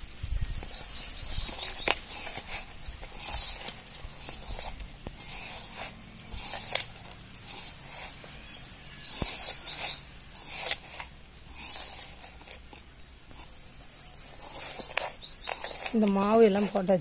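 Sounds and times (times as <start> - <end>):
bird chirping: 0.0 - 2.5, 6.6 - 10.8, 12.9 - 17.0
hand mixing flour in metal vessel: 1.2 - 8.2, 9.2 - 13.5, 14.4 - 17.0
sharp scrape or knock: 1.3 - 8.4, 9.0 - 13.7.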